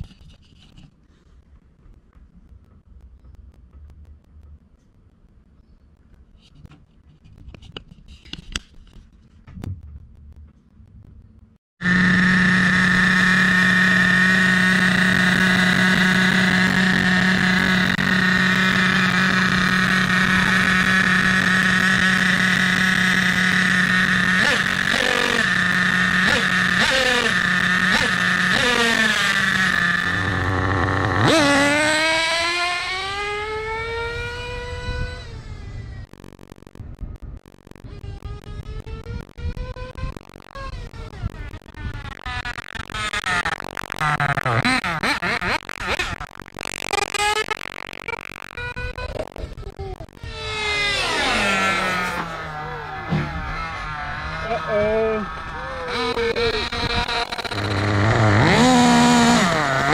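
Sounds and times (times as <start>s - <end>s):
faint clicks: 0.0s - 11.6s, 36.1s - 51.0s
model engine buzzing and revving: 11.8s - 36.1s, 40.6s - 59.9s.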